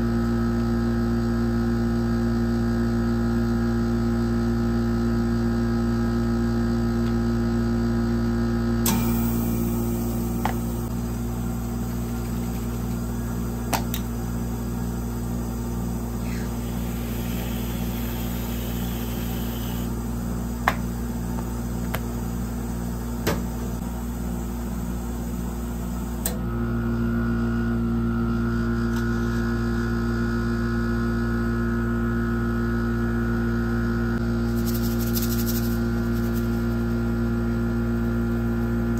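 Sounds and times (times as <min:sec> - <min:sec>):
ice cream machine humming: 0:00.0 - 0:30.8
whipped cream dispenser hiss: 0:08.9 - 0:10.9, 0:16.1 - 0:20.0.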